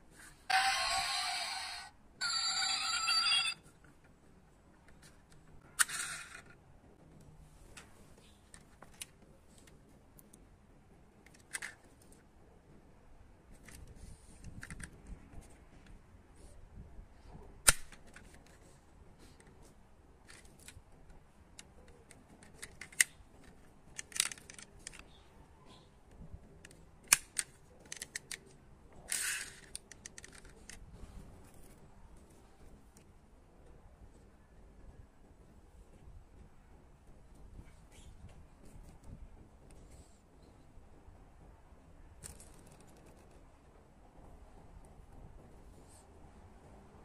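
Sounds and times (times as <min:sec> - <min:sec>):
toy vehicles clicking on concrete: 0:04.9 - 0:06.6, 0:20.2 - 0:25.2, 0:26.6 - 0:30.8.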